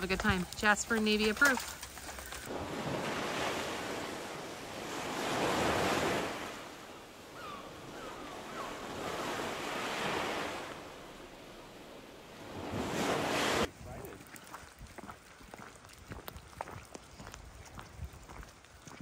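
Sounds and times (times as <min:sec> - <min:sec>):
wind: 0:00.0 - 0:19.0
surf washing ashore: 0:01.4 - 0:13.7.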